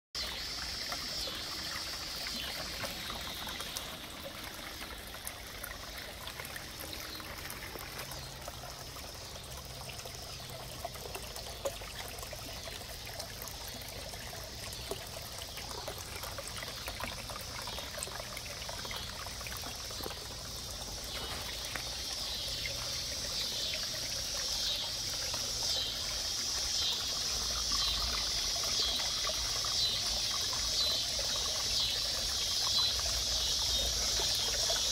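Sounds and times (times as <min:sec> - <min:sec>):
water trickling into a pond: 0:00.2 - 0:34.9.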